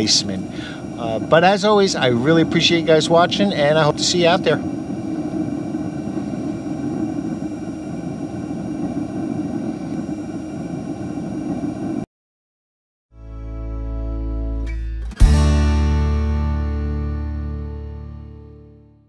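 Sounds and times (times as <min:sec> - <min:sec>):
gas burner rushing: 0:00.0 - 0:12.0.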